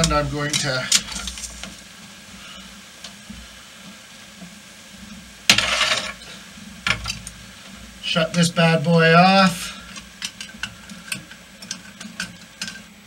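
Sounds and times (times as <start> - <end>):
frying oil sizzling in a saucepan: 0.0 - 13.0
pan being set down: 5.5 - 7.2.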